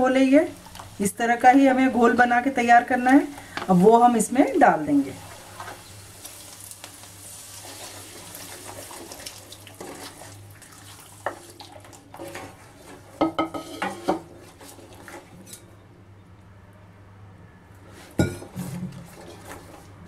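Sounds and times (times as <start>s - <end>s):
spatula stirring liquid: 7.4s - 15.6s.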